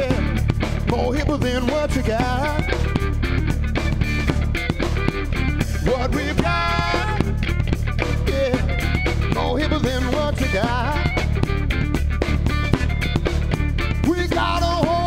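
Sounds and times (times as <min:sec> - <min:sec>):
man singing into microphone: 0:00.0 - 0:02.7, 0:05.8 - 0:07.4, 0:08.2 - 0:11.2, 0:14.0 - 0:15.0
bass guitar: 0:00.0 - 0:15.0
drum kit beat: 0:00.0 - 0:15.0
electric guitar: 0:00.0 - 0:15.0.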